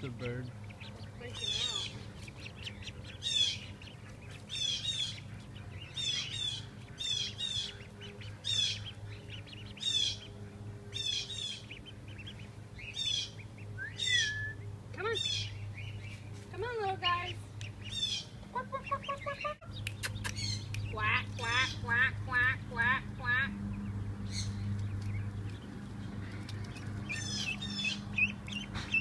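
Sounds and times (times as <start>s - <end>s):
bird calling: 0.0s - 29.0s
steady low hum: 0.0s - 29.0s
lower falling bird call: 13.0s - 14.7s.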